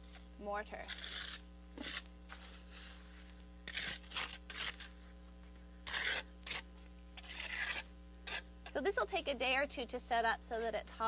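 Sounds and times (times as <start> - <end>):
trowel scraping mortar: 0.8 - 2.9, 3.7 - 4.9, 5.8 - 8.8.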